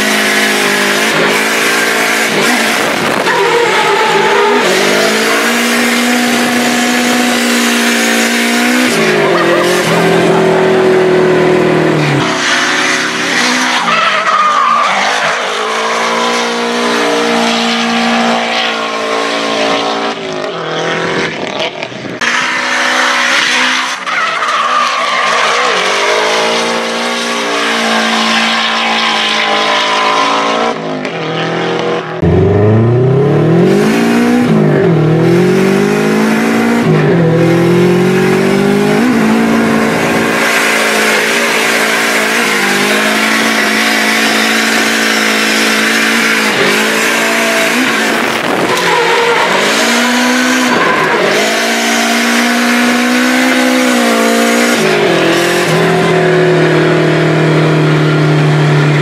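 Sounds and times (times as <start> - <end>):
car engine revving: 0.0 - 59.0
tyres squealing: 3.2 - 6.6, 12.2 - 16.6, 47.3 - 51.9.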